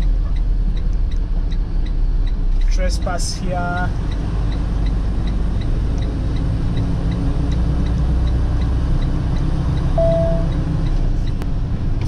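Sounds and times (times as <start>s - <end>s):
diesel truck engine running: 0.0s - 12.0s
turn signal ticking: 0.0s - 12.0s
short high tone: 10.0s - 10.5s.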